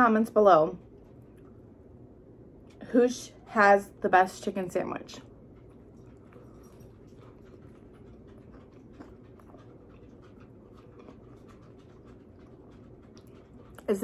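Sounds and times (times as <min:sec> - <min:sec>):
low room hum: 0:00.0 - 0:14.0
person chewing food: 0:00.8 - 0:02.0, 0:05.2 - 0:14.0.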